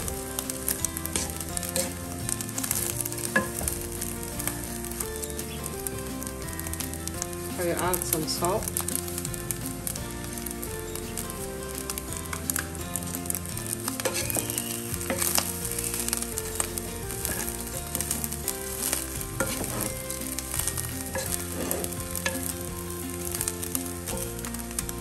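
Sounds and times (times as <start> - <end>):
rice sizzling in hot oil: 0.0 - 25.0
spoon scraping a pot: 1.0 - 4.5, 13.9 - 22.6.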